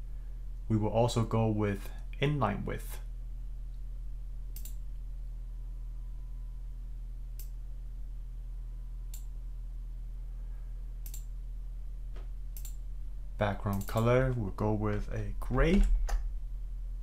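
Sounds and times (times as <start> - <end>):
steady low hum: 0.0 - 17.0
computer mouse clicks: 4.5 - 4.8, 7.4 - 7.6, 11.0 - 11.3, 12.6 - 12.8, 13.7 - 14.0.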